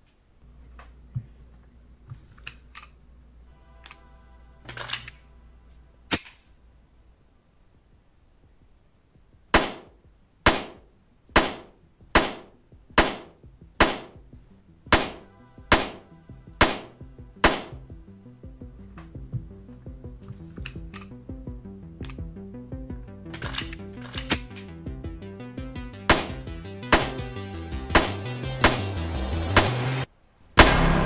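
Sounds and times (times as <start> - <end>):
pistol shots: 9.5 - 14.2, 14.9 - 17.8, 26.1 - 27.3.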